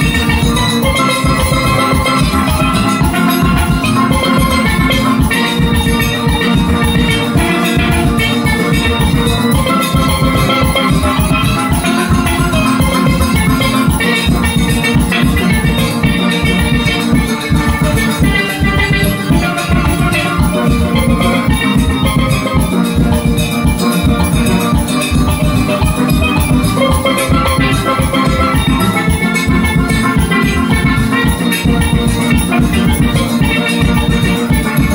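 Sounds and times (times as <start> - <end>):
steady drum beat: 0.0 - 34.9
steel pans playing tune: 0.0 - 34.9.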